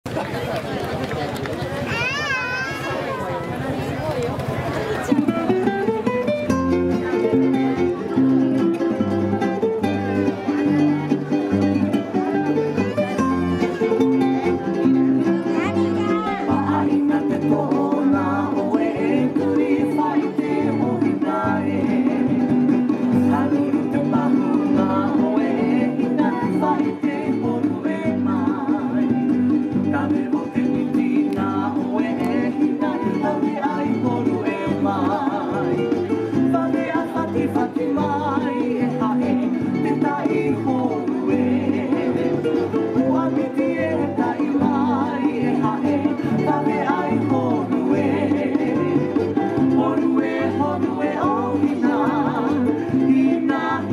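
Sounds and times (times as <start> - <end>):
plucked strings: 5.0 - 53.9
person singing: 13.1 - 53.9.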